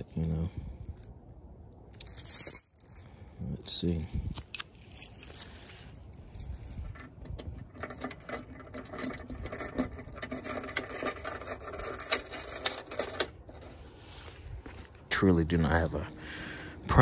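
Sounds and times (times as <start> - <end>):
keys jangling and clicking: 0.0 - 13.8.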